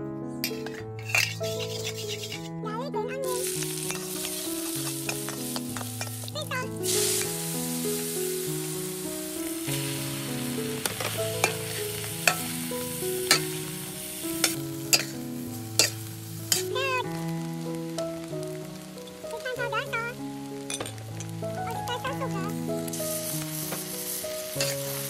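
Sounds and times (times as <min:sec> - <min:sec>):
soft background music: 0:00.0 - 0:25.0
food sizzling in hot oil: 0:00.4 - 0:02.5, 0:03.1 - 0:25.0
metal ladle scraping wok: 0:00.4 - 0:02.5, 0:03.3 - 0:06.3, 0:10.8 - 0:13.6, 0:14.4 - 0:16.7, 0:24.5 - 0:25.0.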